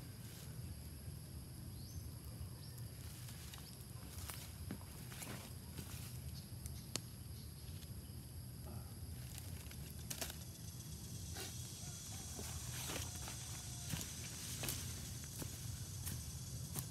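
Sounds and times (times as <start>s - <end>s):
rustling on dry leaves: 2.9s - 6.4s, 9.1s - 16.9s.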